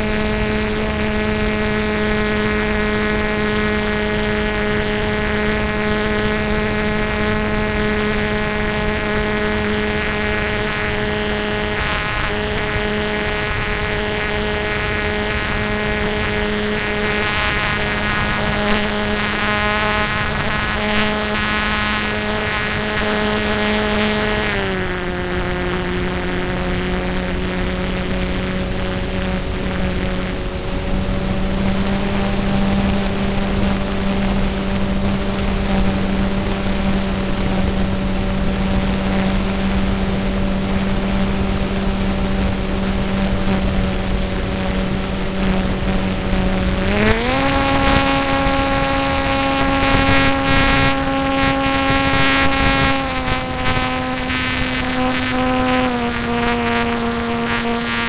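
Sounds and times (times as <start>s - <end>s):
airplane motor and propeller: 0.0s - 58.0s.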